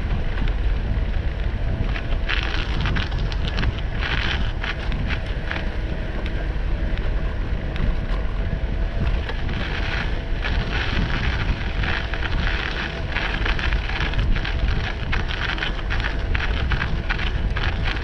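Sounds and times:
bicycle tires crunching on snow: 0.0s - 18.0s
wind rumbling on microphone: 0.0s - 18.0s.

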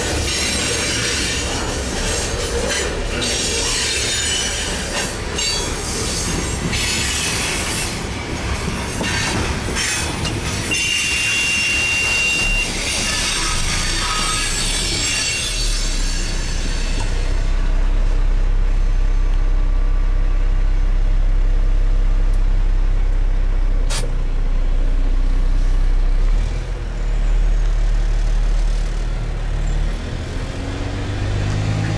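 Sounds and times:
rail hiss: 0.0s - 17.7s
freight train cars rolling past: 0.0s - 19.1s
large engine idling: 15.9s - 29.6s.

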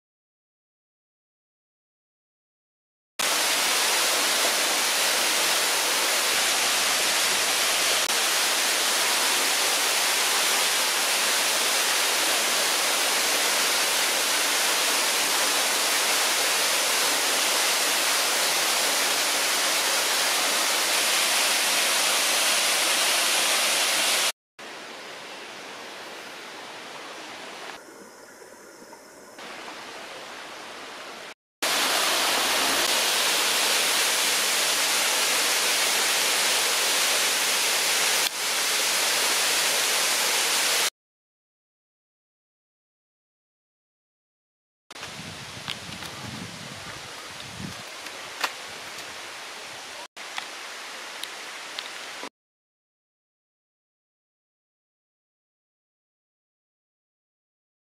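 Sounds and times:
waterfall rushing: 3.2s - 24.3s, 29.4s - 40.9s.

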